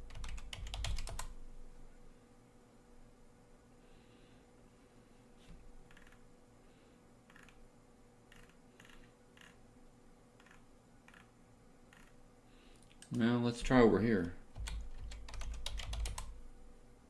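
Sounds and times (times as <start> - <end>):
computer keyboard and mouse clicks: 0.0 - 1.3, 7.3 - 7.6, 10.4 - 11.3, 14.2 - 16.4.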